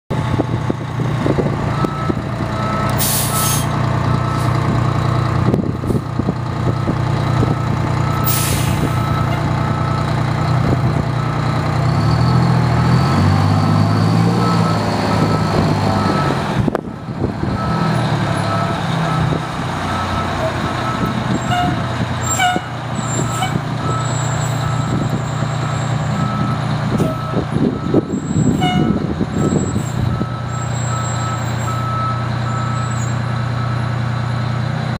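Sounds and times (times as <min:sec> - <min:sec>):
diesel engine running: 0:00.1 - 0:34.9
air brake hisses: 0:03.0 - 0:03.7, 0:08.2 - 0:09.0.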